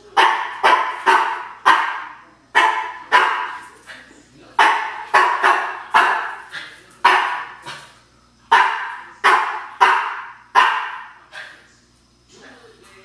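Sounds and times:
dog barking: 0.1s - 3.7s, 4.6s - 7.9s, 8.5s - 11.5s.

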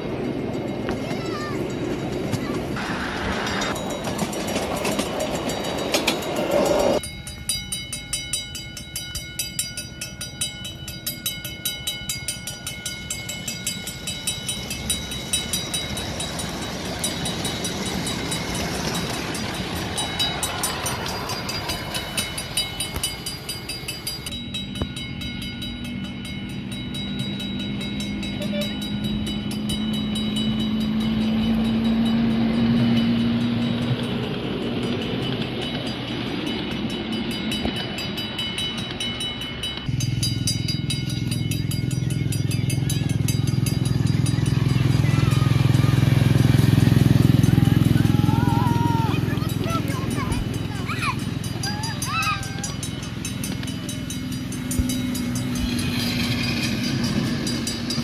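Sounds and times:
model train clicking on track: 1.0s - 7.0s, 9.1s - 24.3s, 49.1s - 58.0s.

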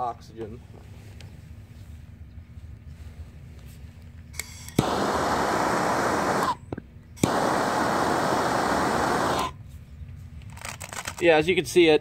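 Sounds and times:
gas torch igniter click: 4.4s - 6.6s, 7.2s - 9.5s
gas torch flame hissing: 4.7s - 6.6s, 7.2s - 9.6s.

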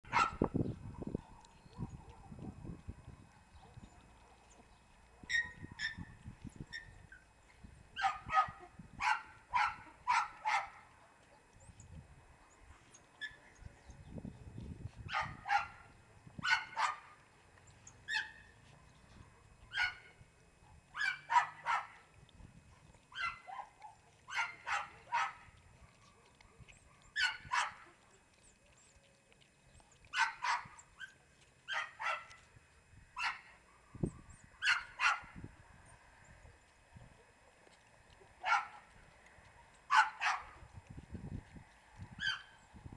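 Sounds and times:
puppies yipping and squeaking: 3.6s - 10.8s, 12.8s - 13.6s, 17.7s - 20.1s, 21.0s - 22.0s, 22.7s - 32.5s, 33.2s - 35.2s, 42.2s - 42.7s.

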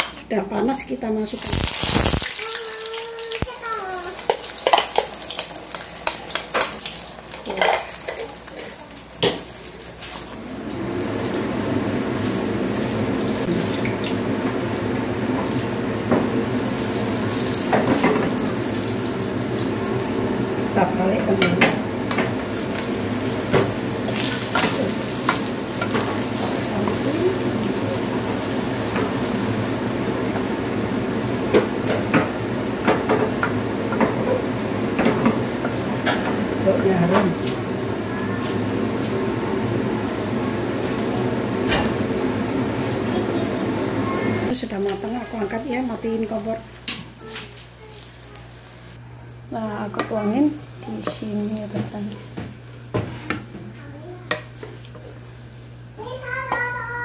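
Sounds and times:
egg sizzling in hot oil: 1.3s - 20.9s, 21.8s - 43.1s, 44.5s - 49.0s
utensils knocking on pan: 17.5s - 18.8s, 21.3s - 27.1s.

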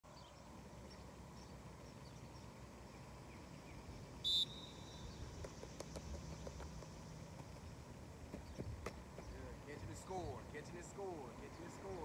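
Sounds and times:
faint bird chirps: 0.1s - 5.7s.

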